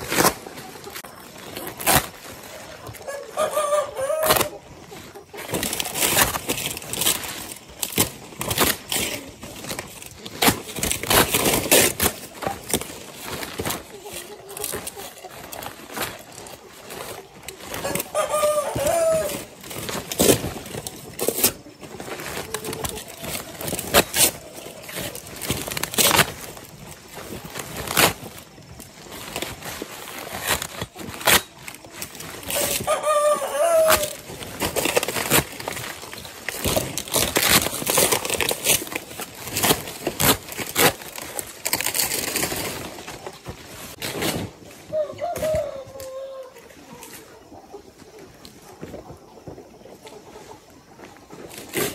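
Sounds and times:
young chickens: 0:00.0 - 0:51.9
young cockerel crowing: 0:03.1 - 0:04.6, 0:18.1 - 0:19.4, 0:32.6 - 0:34.2, 0:44.9 - 0:46.7.

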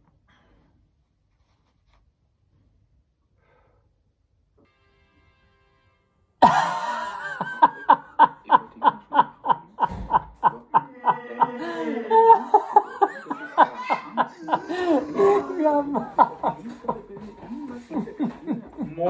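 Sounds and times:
man laughing loudly: 0:06.4 - 0:19.0.

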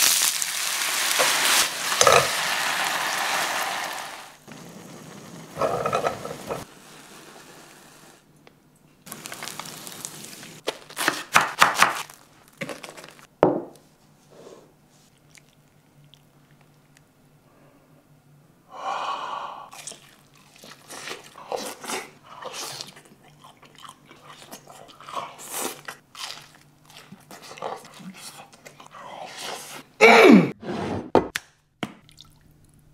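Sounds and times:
chewing: 0:15.1 - 0:17.0, 0:19.7 - 0:29.0.

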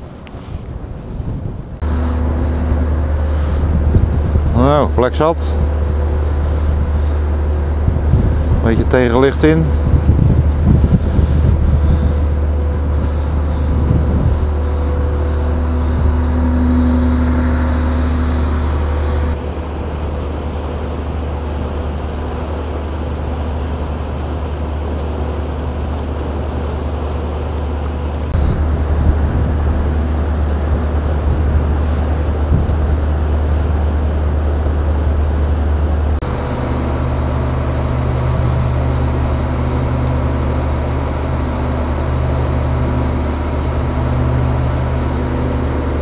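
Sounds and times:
barge engine rumble: 0:00.0 - 0:46.0
faint steady tone: 0:12.2 - 0:20.3.

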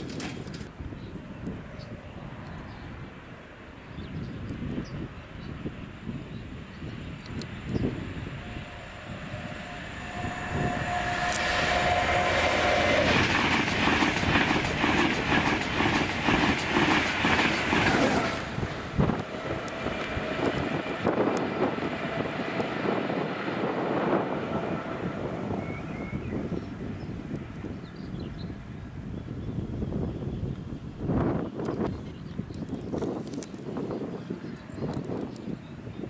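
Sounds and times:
wheel clatter over rails: 0:00.0 - 0:00.8, 0:10.9 - 0:20.7
distant train rumble: 0:00.0 - 0:30.2
express train passing at speed: 0:00.0 - 0:31.8.

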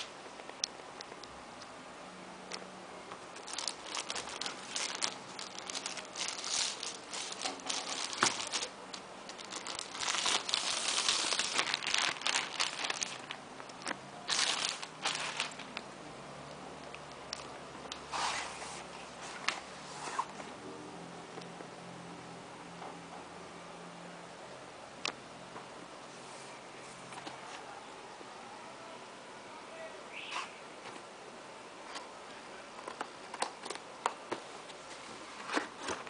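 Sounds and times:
plastic packaging crinkling and tearing: 0:03.3 - 0:15.8.

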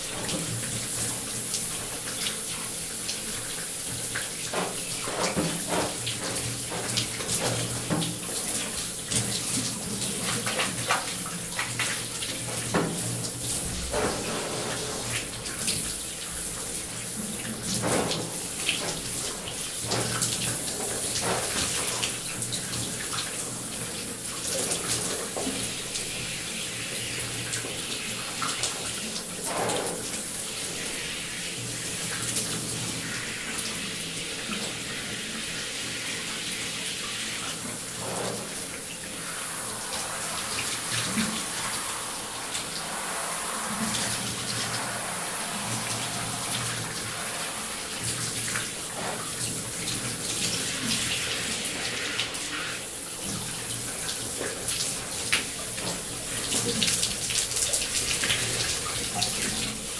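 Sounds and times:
shower spray hissing: 0:00.0 - 0:23.4, 0:24.2 - 0:59.9.

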